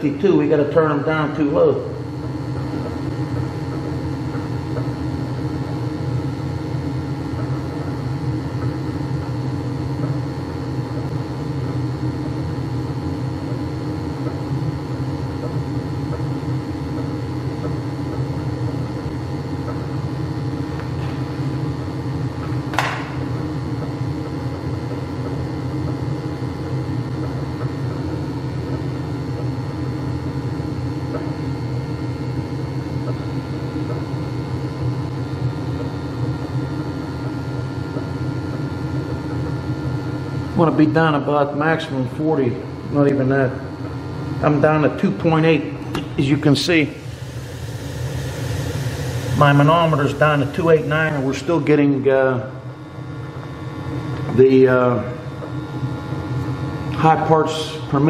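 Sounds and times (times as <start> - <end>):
boiler burner rumble and hum: 0.0 - 58.0.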